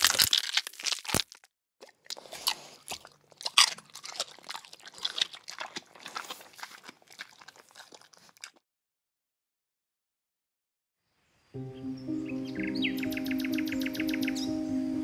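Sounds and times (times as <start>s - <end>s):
crunching and chewing: 0.0s - 8.6s.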